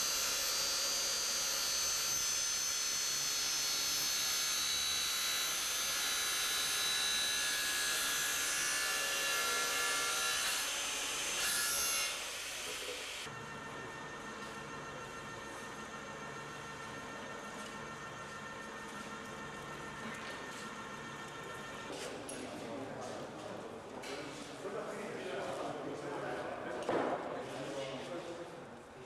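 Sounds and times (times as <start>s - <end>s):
circular saw cutting metal tube: 0.0s - 21.9s.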